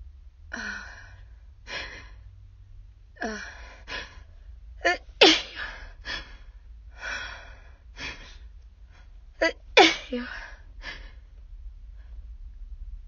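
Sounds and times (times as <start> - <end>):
heavy breathing: 0.5 - 2.3, 3.2 - 4.6, 5.5 - 9.5, 10.1 - 12.3
person sneezing: 4.8 - 5.8, 9.4 - 10.5.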